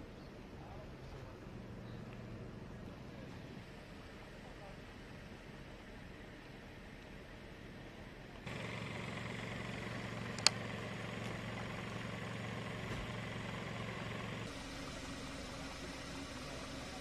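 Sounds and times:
low engine hum: 0.0s - 17.0s
sharp click: 10.4s - 10.6s.

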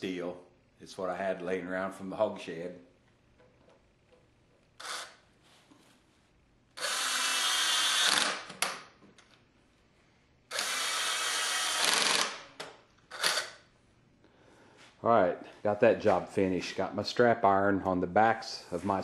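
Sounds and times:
drill click: 4.8s - 5.2s, 6.8s - 8.8s, 10.5s - 13.6s
power drill driving screws: 4.8s - 5.2s, 6.8s - 8.7s, 10.5s - 12.5s, 13.1s - 13.6s.

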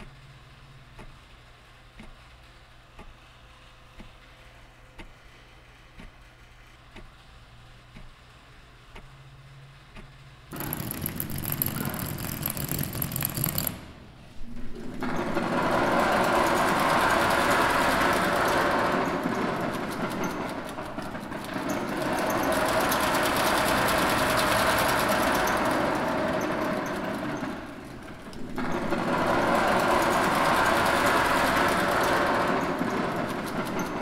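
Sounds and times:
electric motors buzzing rattle: 10.5s - 14.0s.

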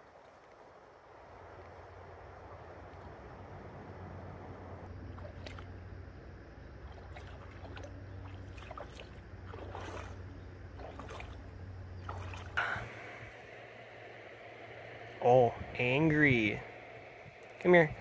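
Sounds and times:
low hum: 0.0s - 18.0s
feet wading through water: 4.9s - 13.1s.

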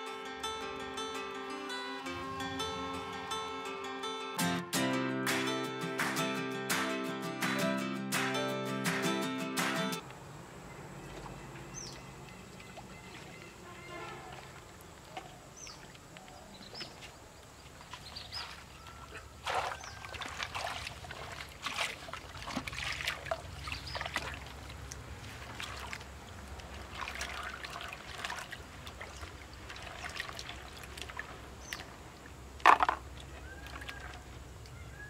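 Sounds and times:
water sloshing and splashing in pot: 11.0s - 17.0s, 17.6s - 34.6s.

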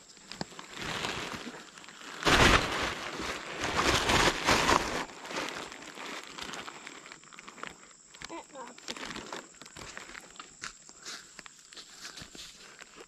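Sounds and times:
plastic bag rustling: 0.2s - 10.6s.

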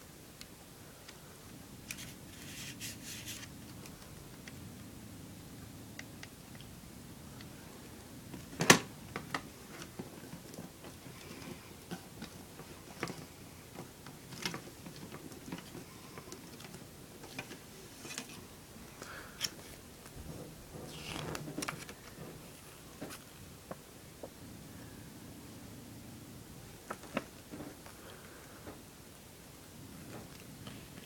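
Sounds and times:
paper rustling: 1.9s - 3.9s, 19.4s - 23.3s.

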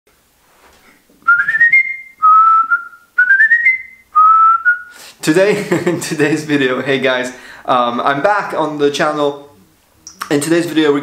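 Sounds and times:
man whistling a tune: 1.2s - 5.0s.

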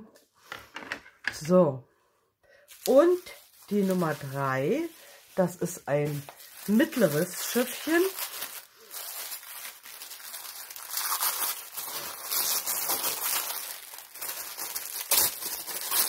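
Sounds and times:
plastic wrapping crinkling: 2.7s - 16.0s.

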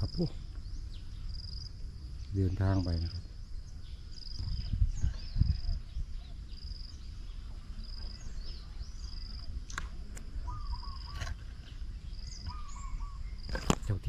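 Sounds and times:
small bird chirps: 0.0s - 14.0s
low wavy bird call: 10.4s - 11.6s, 12.3s - 13.4s
bird trilling: 10.4s - 13.6s.

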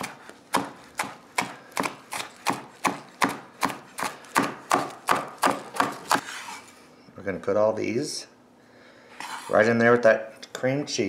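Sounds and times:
knife chopping on plastic board: 0.0s - 6.3s.

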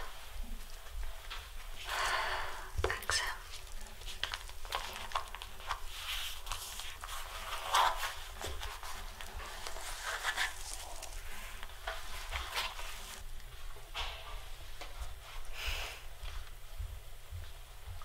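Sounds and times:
paper and clothing rustling: 3.2s - 13.2s.

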